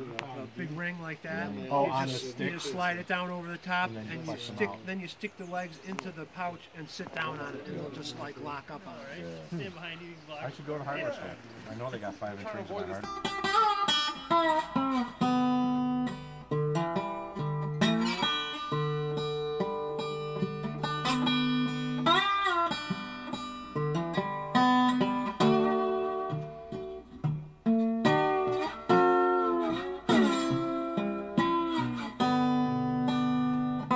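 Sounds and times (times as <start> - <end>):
acoustic slide guitar: 13.0 - 33.9.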